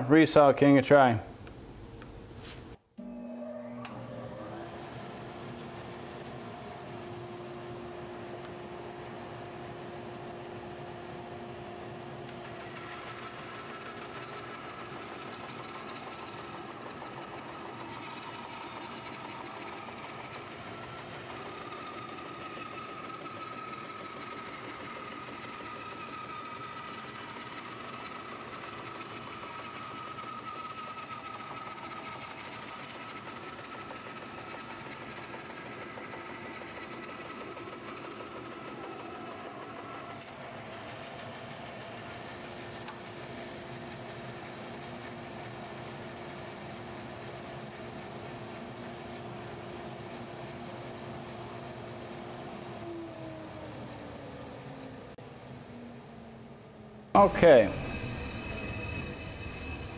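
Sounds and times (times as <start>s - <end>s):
dust collector running: 3.0s - 55.1s, 57.2s - 59.9s
bandsaw cutting board: 57.2s - 59.9s.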